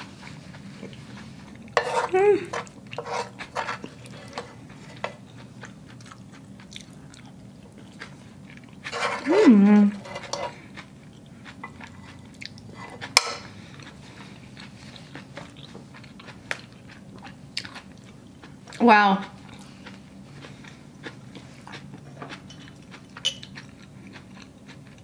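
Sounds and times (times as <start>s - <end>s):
chewing spaghetti: 0.0s - 25.0s
person humming mmm: 2.0s - 2.6s, 9.2s - 10.0s.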